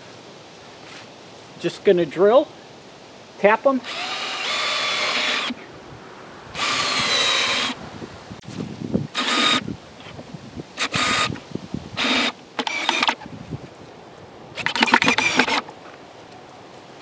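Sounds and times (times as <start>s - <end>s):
cordless drill whine: 3.8s - 5.6s, 6.6s - 7.8s, 9.2s - 9.7s, 10.8s - 11.4s, 12.0s - 13.2s, 14.6s - 15.6s.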